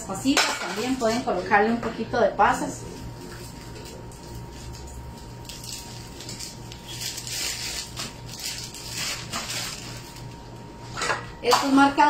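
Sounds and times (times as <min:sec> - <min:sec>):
rustling and crinkling handling noise: 0:02.8 - 0:11.0.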